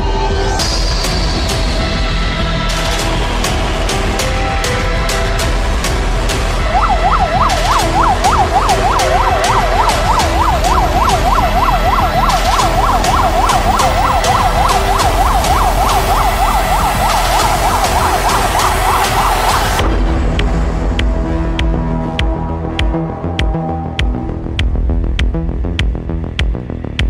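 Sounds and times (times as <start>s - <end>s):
ambulance siren yelp: 6.6s - 19.8s.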